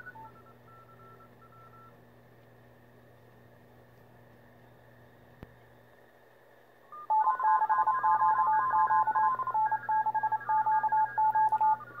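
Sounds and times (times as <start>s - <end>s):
faint radio band hiss: 0.0s - 12.0s
morse code tones: 7.0s - 12.0s.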